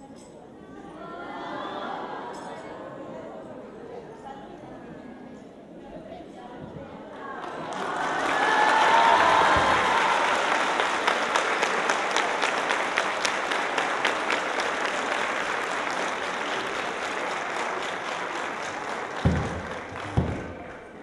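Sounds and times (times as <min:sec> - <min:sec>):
audience applauding: 0:07.2 - 0:21.0.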